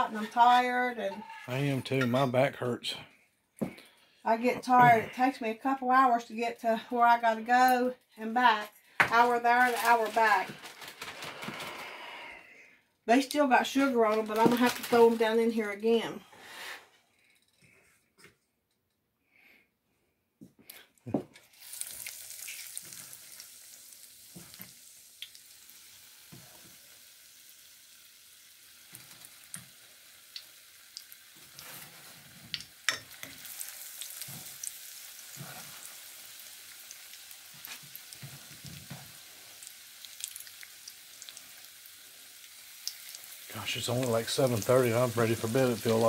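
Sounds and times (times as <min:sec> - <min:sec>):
food deep-frying in hot oil: 0:13.3 - 0:15.9, 0:21.4 - 0:46.0.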